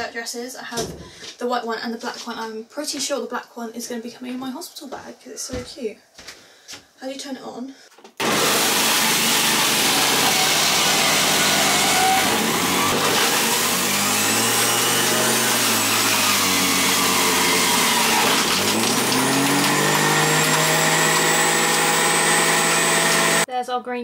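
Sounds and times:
juicer motor running: 0:08.2 - 0:23.5.

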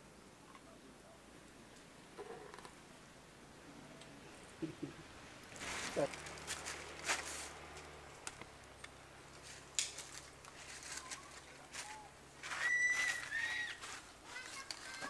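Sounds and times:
high whistled call: 0:11.0 - 0:13.8.

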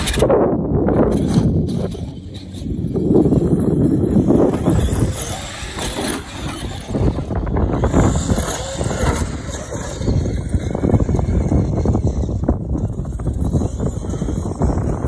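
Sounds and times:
radio-controlled car motors: 0:00.0 - 0:00.3, 0:00.9 - 0:15.0
tyres churning sand: 0:00.0 - 0:15.0
wind on microphone: 0:00.0 - 0:15.0.

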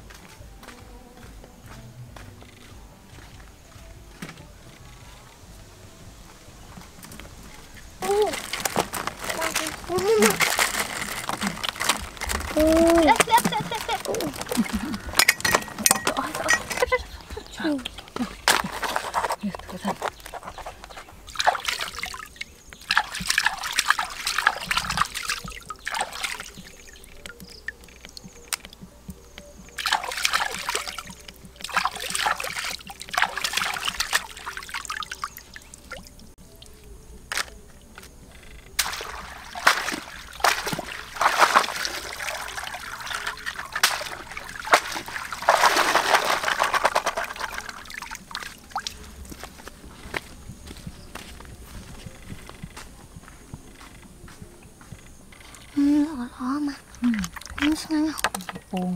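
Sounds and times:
water splashing and trickling: 0:02.4 - 0:53.3, 0:54.3 - 0:58.9.

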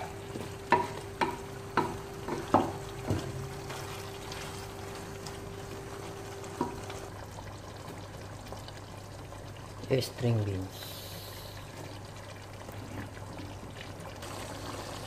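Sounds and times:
wooden spoon stirring stew: 0:00.0 - 0:07.2
spoon knocking against pot: 0:00.7 - 0:03.2.

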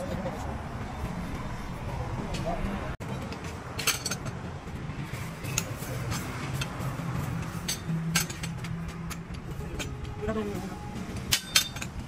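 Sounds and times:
metal tools clinking on metal: 0:03.0 - 0:04.4, 0:07.4 - 0:10.1, 0:11.1 - 0:12.0.

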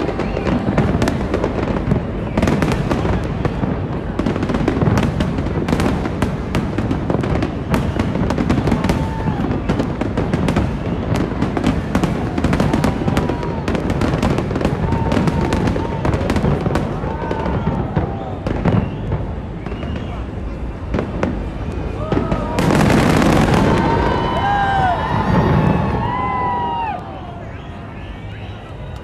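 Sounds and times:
fireworks crackling and popping: 0:00.0 - 0:29.0.

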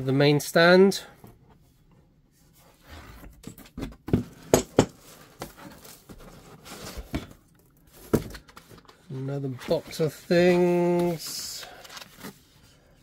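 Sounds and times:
cardboard knocks and bumps: 0:08.0 - 0:08.5.

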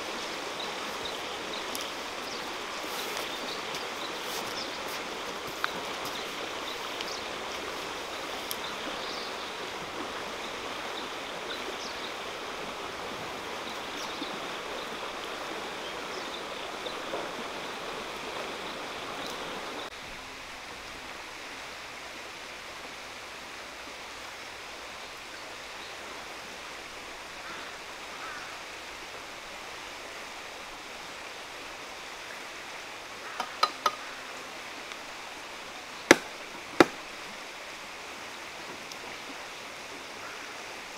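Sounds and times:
outdoor background hiss: 0:00.0 - 0:40.9.

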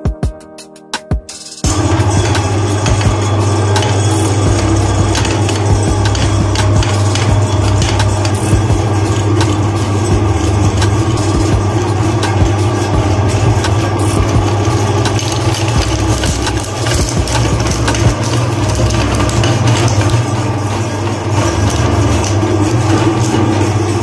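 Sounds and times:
meat grinder motor hum: 0:01.6 - 0:24.0
candy cracking and crunching: 0:12.5 - 0:23.5.

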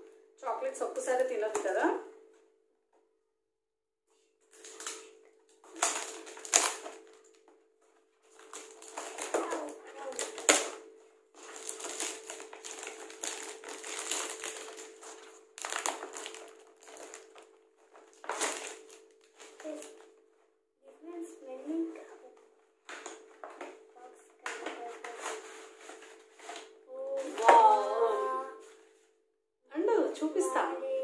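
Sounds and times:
packaging crinkling and tearing: 0:04.5 - 0:07.4, 0:08.3 - 0:20.1.

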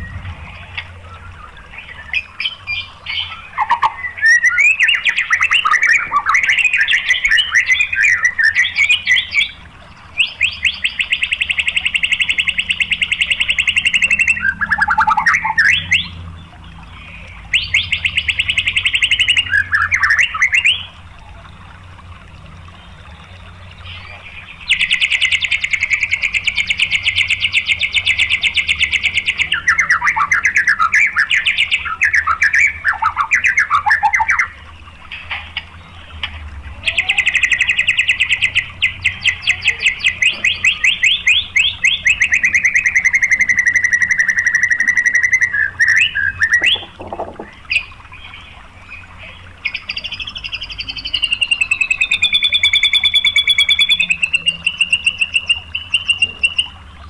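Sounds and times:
bird whistling varied phrases: 0:51.0 - 0:56.8.

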